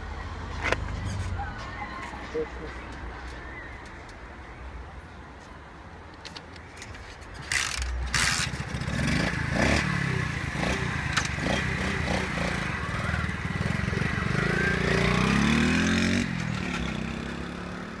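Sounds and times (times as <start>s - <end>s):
moped engine revving: 7.5s - 18.0s.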